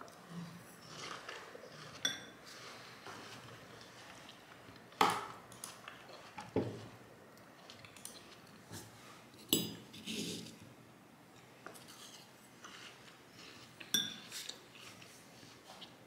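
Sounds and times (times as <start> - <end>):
fork clinking on ceramic bowl: 2.0 - 2.3.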